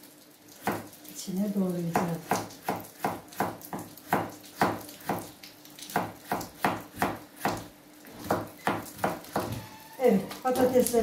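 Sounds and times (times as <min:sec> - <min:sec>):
knife chopping on plastic board: 0:05.9 - 0:09.6.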